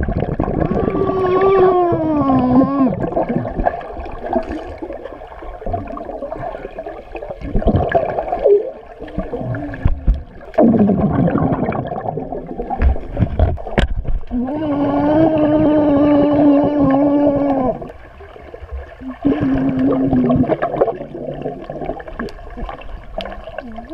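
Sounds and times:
person humming underwater: 0.0 - 4.8, 7.6 - 12.6, 14.3 - 18.0, 19.0 - 23.9
burst of bubbles: 0.0 - 13.4, 19.0 - 23.9
underwater water movement: 0.0 - 23.9.

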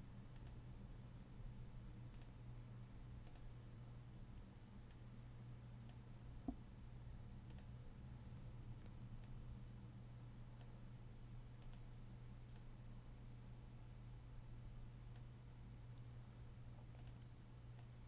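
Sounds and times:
low steady hum: 0.0 - 18.0
computer mouse clicks: 0.3 - 0.6, 2.1 - 2.4, 3.2 - 3.5, 4.8 - 5.0, 5.8 - 6.0, 7.4 - 7.8, 10.6 - 10.8, 11.6 - 11.9, 15.1 - 15.3, 16.8 - 18.0.

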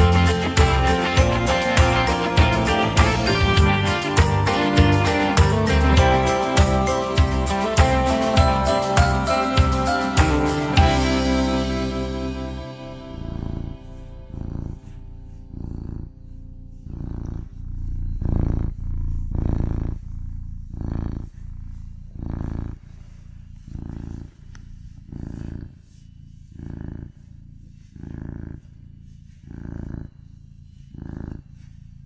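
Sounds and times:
music track: 0.0 - 16.0
cat purring: 0.0 - 32.0.

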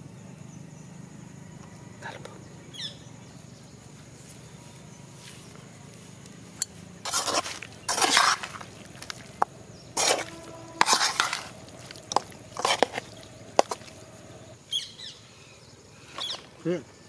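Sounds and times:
metal ladle scraping pan: 7.0 - 9.1, 10.0 - 14.0.

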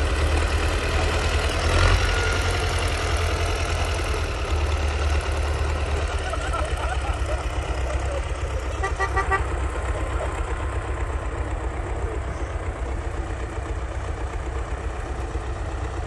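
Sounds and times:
engines rumbling: 0.0 - 16.0
stuttering horn toot: 8.7 - 9.6.

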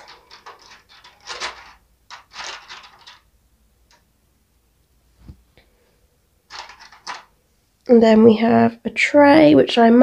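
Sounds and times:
plastic blister tray crinkling: 0.0 - 3.3, 6.5 - 7.4
plastic pieces clicking down: 0.0 - 4.1, 6.5 - 7.3.

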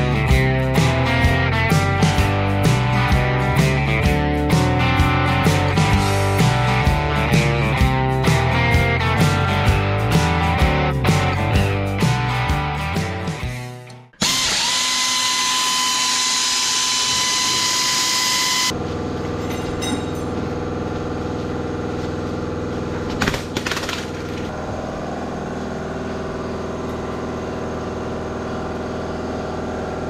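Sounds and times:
power tool whining: 14.2 - 18.8
mechanical hum: 14.2 - 30.0
metal clanks: 19.4 - 20.4.

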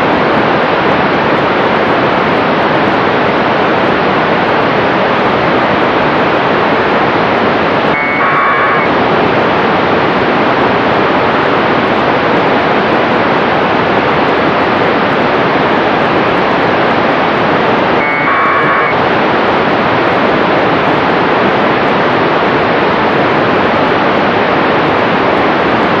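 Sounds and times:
radio static hiss: 5.1 - 10.3, 14.0 - 20.6
data tone bursts: 7.9 - 8.9, 18.0 - 19.0.

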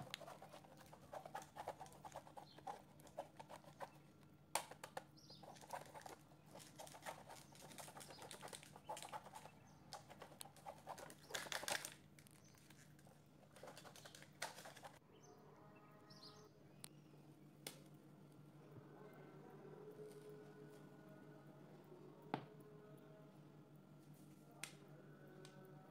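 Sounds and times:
chocolate scraping on grater: 0.0 - 4.7, 5.3 - 11.8
paper rustle: 4.6 - 15.0.

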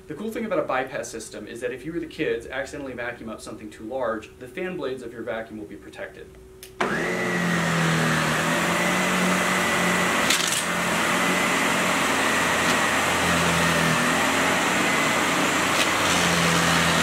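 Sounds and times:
vacuum cleaner running: 6.8 - 17.0.

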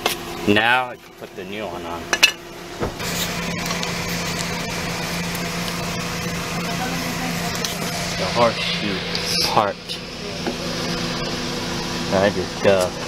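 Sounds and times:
machine hum with low drone: 0.0 - 13.0.

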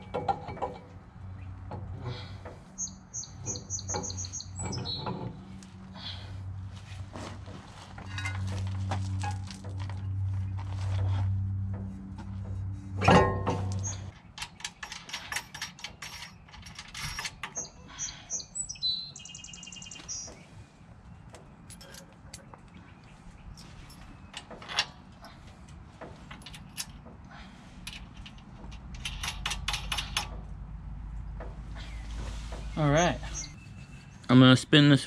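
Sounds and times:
bird chirping: 2.7 - 5.6, 16.2 - 24.6, 31.6 - 34.4
metal brake parts clinking: 8.0 - 9.6.

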